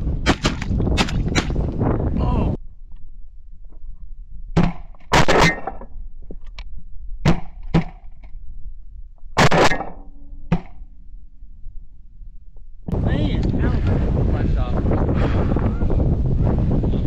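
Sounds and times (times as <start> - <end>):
shotgun shots: 0.2 - 1.6, 4.6 - 5.8, 9.4 - 10.8.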